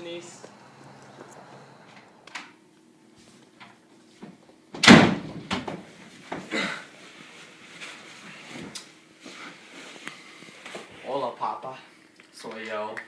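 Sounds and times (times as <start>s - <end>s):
loud slam: 4.8s - 5.7s.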